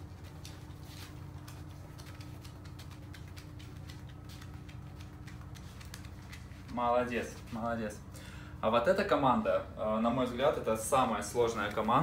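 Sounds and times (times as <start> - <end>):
dog claws clicking on floor: 0.0 - 7.6
steady low hum: 0.0 - 12.0.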